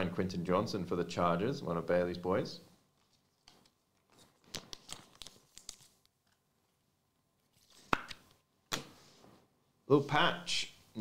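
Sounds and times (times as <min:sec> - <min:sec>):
cards clicking and rustling: 0:03.0 - 0:06.4.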